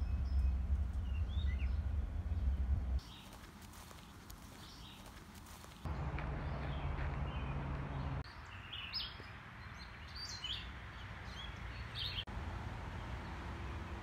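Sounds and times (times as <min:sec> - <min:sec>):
low rumble: 0:00.0 - 0:03.1
outdoor background noise: 0:00.0 - 0:14.0
songbird chirping: 0:00.0 - 0:14.0.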